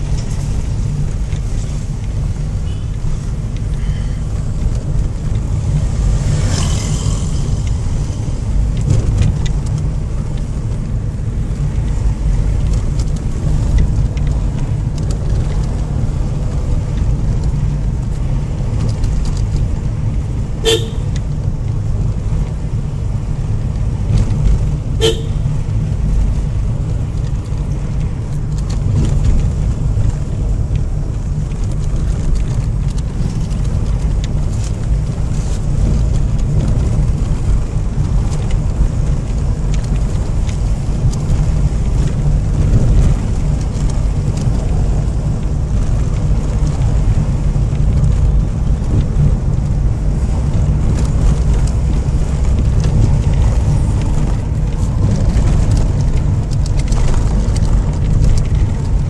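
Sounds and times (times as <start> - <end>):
car engine and road noise: 0.0 - 59.0
car horn toots: 20.6 - 21.2, 25.0 - 25.5.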